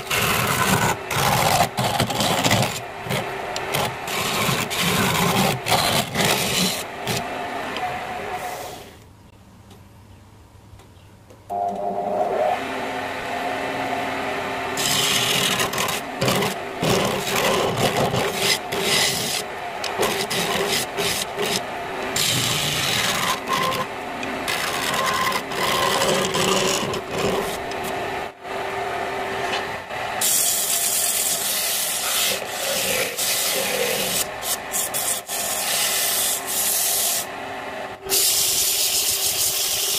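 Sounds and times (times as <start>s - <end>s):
sandpaper rubbing spinning wood: 0.0s - 7.3s, 14.8s - 28.0s, 30.2s - 37.3s, 38.1s - 39.9s
lathe motor humming: 0.0s - 8.8s, 11.8s - 38.0s
gouge scraping spinning wood: 0.0s - 8.9s, 14.8s - 28.1s, 30.2s - 37.3s.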